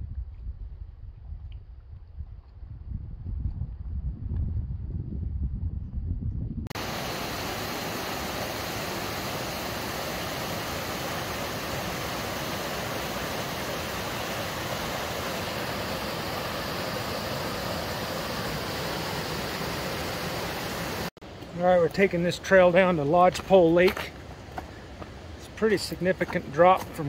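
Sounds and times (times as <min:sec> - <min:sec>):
waterfall rushing: 0:06.8 - 0:24.0.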